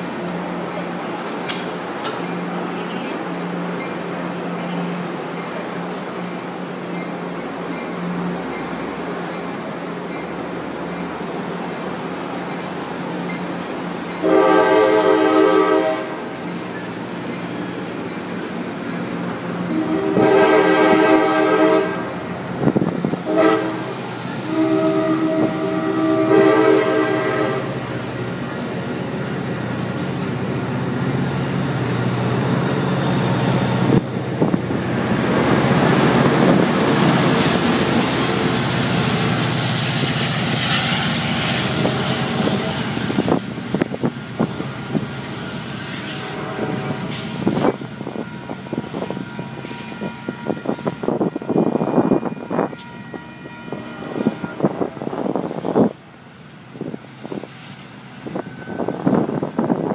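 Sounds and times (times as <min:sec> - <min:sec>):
train wheels on rails: 0:00.0 - 0:59.9
train horn blasts: 0:14.2 - 0:16.3, 0:19.7 - 0:22.2, 0:23.2 - 0:27.8, 0:45.9 - 0:55.1.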